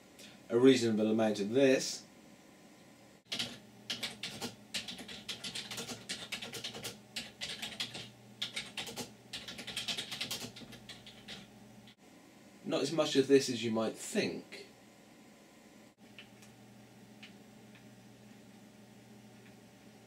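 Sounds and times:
fast typing on keyboard: 3.3 - 11.5.

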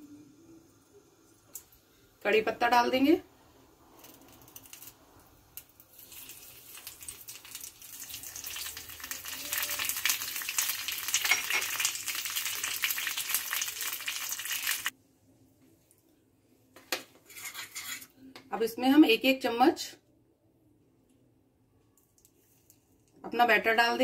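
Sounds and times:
seeds sizzling in hot oil: 3.5 - 14.9.

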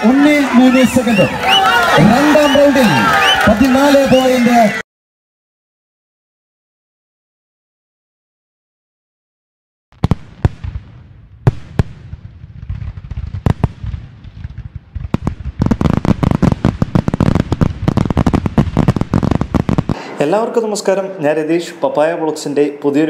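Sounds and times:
firecrackers going off: 0.0 - 4.6, 10.0 - 20.2.

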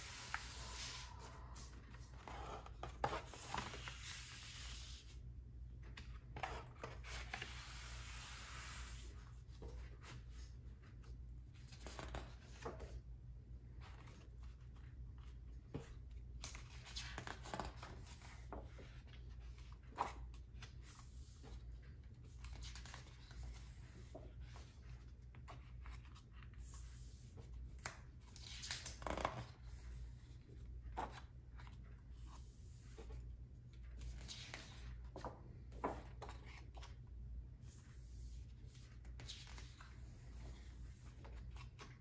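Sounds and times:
paper pages turning: 13.8 - 33.2, 37.8 - 42.0.

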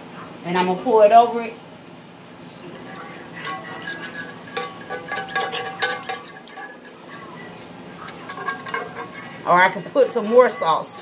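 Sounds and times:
spoon scraping a skillet: 2.6 - 11.0.

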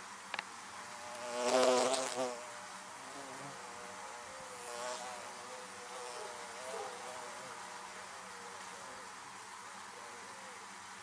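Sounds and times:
honeybees buzzing: 0.9 - 9.6.

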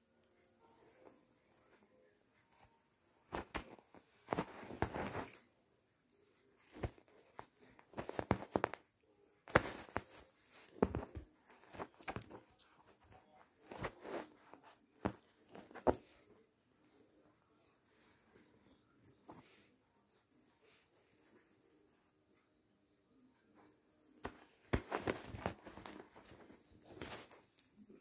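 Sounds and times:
sheet rustling and scratching: 0.6 - 5.5, 6.2 - 8.9, 9.5 - 17.0, 24.2 - 27.6.

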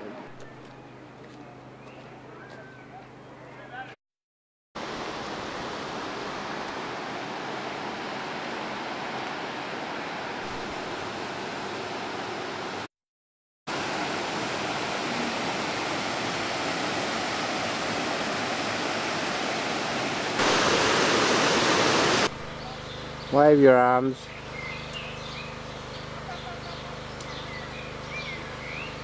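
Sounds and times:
river water rushing through rapids: 4.8 - 12.9, 13.7 - 22.3.

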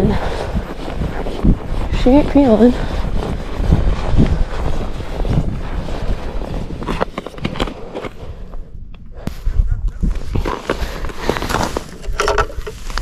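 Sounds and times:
footsteps crunching on snow: 0.0 - 8.6, 10.1 - 13.0
wind buffeting microphone: 0.0 - 13.0.

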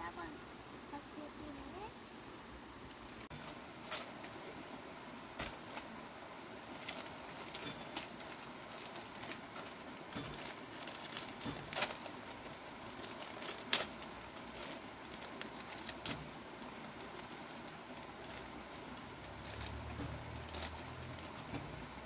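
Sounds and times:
faint background hiss: 0.0 - 22.0
plastic bag crinkling: 3.3 - 4.5, 6.6 - 22.0.

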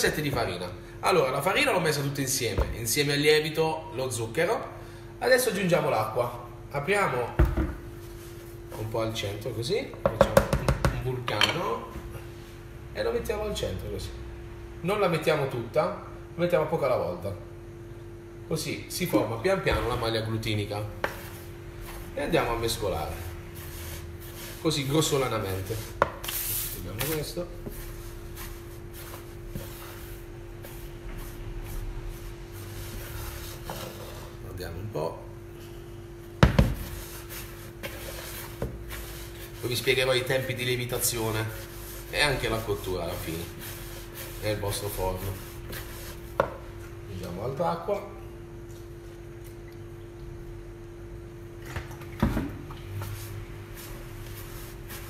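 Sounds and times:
steady low hum: 0.0 - 55.0
stirring wet flour in bowl: 20.7 - 34.5, 36.6 - 47.3, 52.8 - 55.0
wooden spoon scraping dough: 21.0 - 34.4, 36.8 - 46.4.

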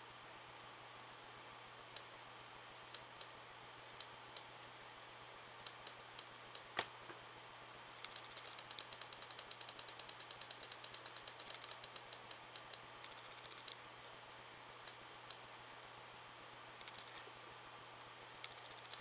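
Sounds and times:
mouse scroll wheel clicking: 8.0 - 13.8, 16.8 - 17.2, 18.4 - 19.0.

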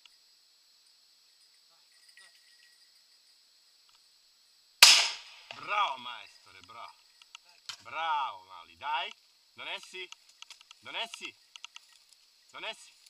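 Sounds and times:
shotgun shot: 4.8 - 5.6.

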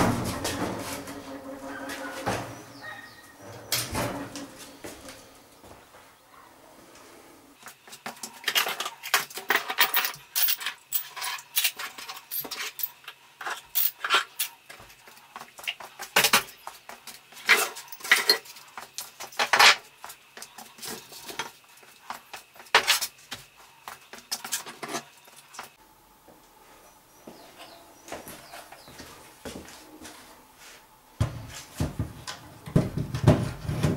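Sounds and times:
metal tools clinking: 8.5 - 14.6.

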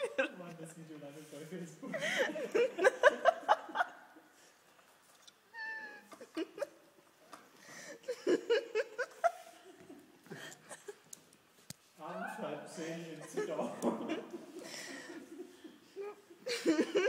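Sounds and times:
person giggling and laughing: 8.0 - 11.0, 13.2 - 17.0.

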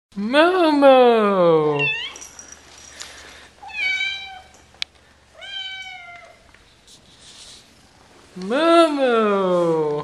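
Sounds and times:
cat meowing: 5.4 - 6.4.

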